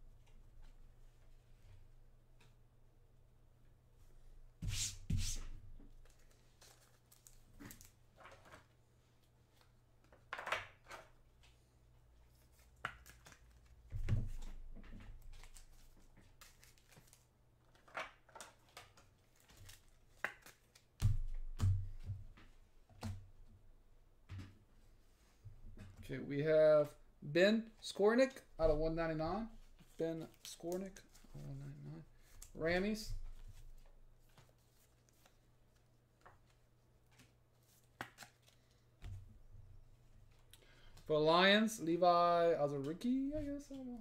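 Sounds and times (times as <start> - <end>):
cards rustling and sliding: 4.6 - 8.7, 12.2 - 14.6, 15.2 - 21.0, 29.7 - 39.1.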